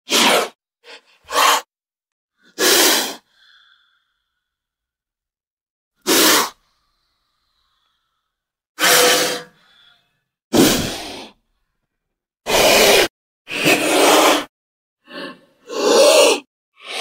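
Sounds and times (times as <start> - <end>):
snake hissing: 2.5 - 3.2, 6.0 - 6.6, 8.8 - 9.6.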